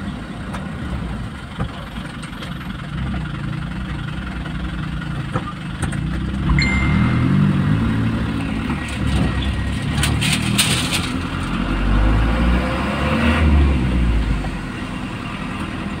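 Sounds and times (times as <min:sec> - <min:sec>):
vehicle engine droning: 0:00.0 - 0:16.0.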